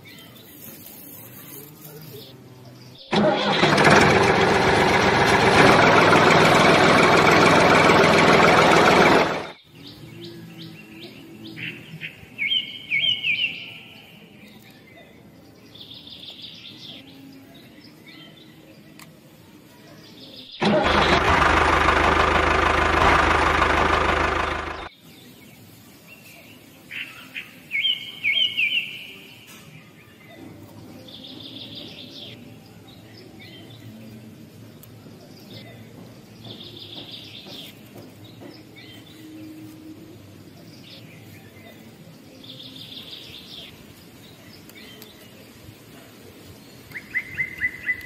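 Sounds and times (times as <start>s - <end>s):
loud engine running: 3.1s - 9.6s, 20.6s - 24.9s.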